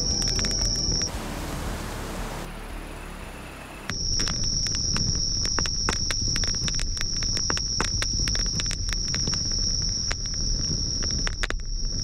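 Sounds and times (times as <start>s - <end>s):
campfire crackling and popping: 0.0s - 12.0s
crickets chirring: 2.6s - 12.0s.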